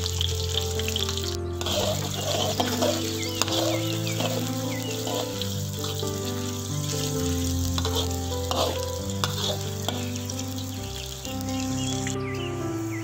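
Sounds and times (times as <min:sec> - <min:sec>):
background music with held notes: 0:00.0 - 0:13.0
shallots sizzling in hot oil: 0:00.0 - 0:13.0
metal spatula scraping wok: 0:00.5 - 0:10.7.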